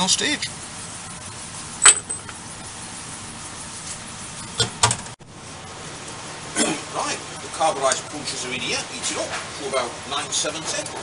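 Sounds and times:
workshop background noise: 0:00.0 - 0:11.0
metal pieces knocking: 0:01.8 - 0:02.3.

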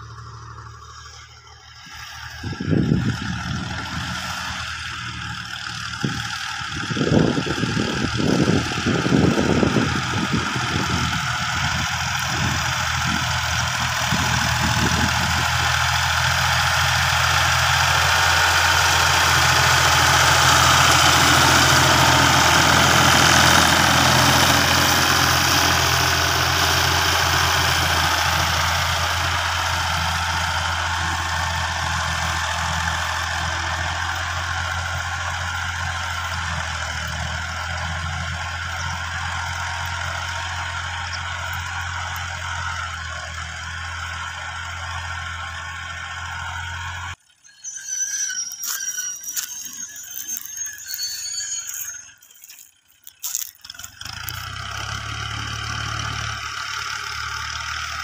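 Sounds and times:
tractor diesel engine under load: 0:00.0 - 0:58.0.

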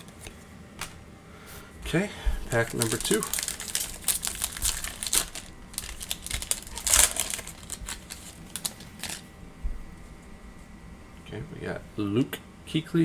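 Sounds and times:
foil ripping: 0:02.5 - 0:09.2
foil wrapper crinkling and tearing: 0:02.5 - 0:09.3.

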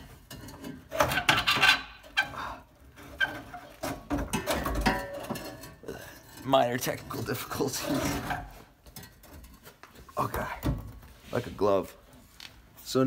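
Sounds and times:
metal and rubber squeaks: 0:00.0 - 0:12.3.

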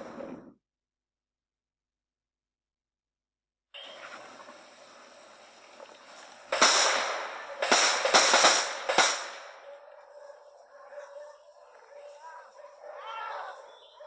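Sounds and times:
handgun shots: 0:06.6 - 0:09.6.

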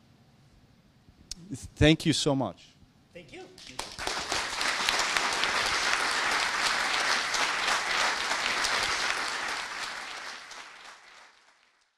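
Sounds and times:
audience applauding: 0:03.6 - 0:11.9.

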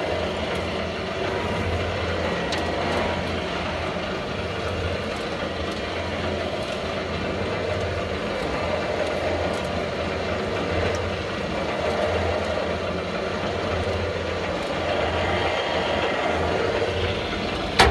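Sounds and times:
feed mixer machine drone: 0:00.0 - 0:17.9.

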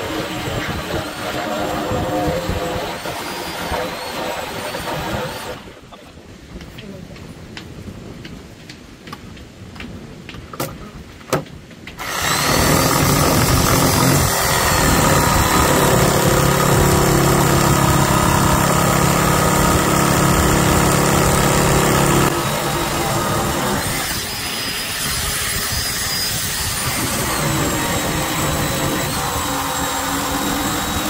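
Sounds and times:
power tool cutting hardwood: 0:00.0 - 0:05.7, 0:12.0 - 0:31.0.

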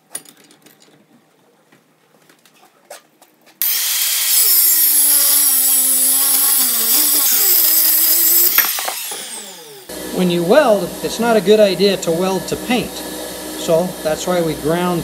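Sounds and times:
angle grinder cutting steel: 0:03.6 - 0:15.0.

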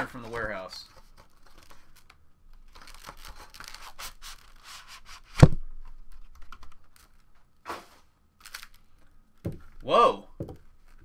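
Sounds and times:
plastic packaging scraping and rustling: 0:00.0 - 0:09.0.

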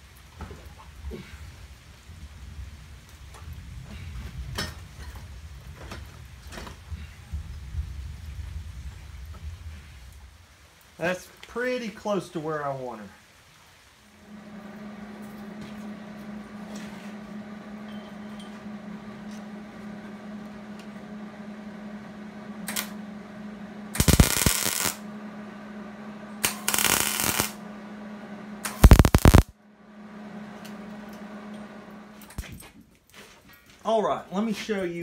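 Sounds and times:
steady background hum: 0:13.8 - 0:32.9
arc welding crackling: 0:22.5 - 0:23.2, 0:23.9 - 0:25.2, 0:26.3 - 0:27.7, 0:28.6 - 0:29.5.

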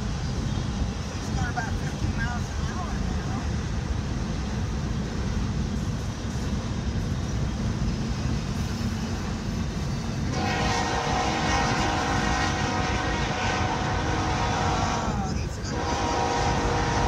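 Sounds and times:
locomotive horn chord: 0:10.3 - 0:17.0.

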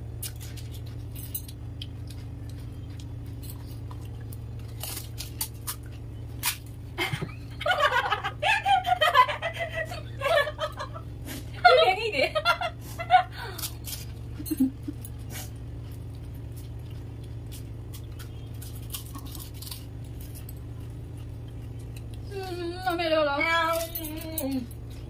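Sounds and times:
steady low hum: 0:00.0 - 0:25.0
woman moaning: 0:22.3 - 0:23.2.

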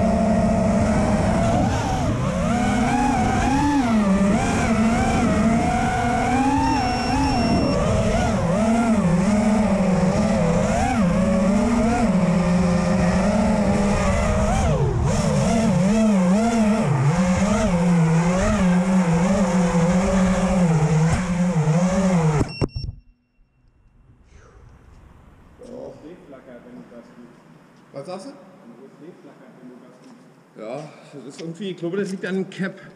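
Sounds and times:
drone motors whining: 0:00.0 - 0:25.4.

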